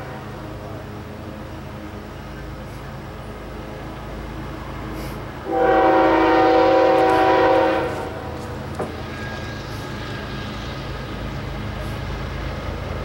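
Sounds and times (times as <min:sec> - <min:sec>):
locomotive air horn blast: 0:05.0 - 0:08.4.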